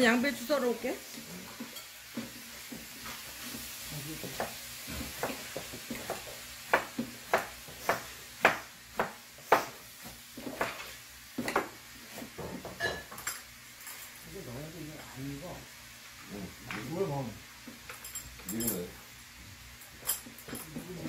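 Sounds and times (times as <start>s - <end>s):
beef sizzling in a wok: 0.0s - 21.0s
spatula scraping and knocking pan: 1.2s - 13.2s.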